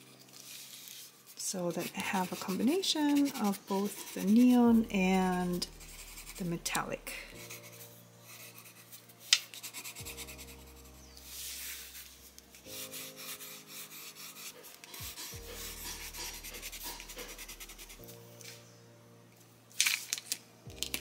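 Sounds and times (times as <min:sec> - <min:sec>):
pencil scratching on paper: 0:00.0 - 0:18.2
soft background music: 0:00.0 - 0:21.0.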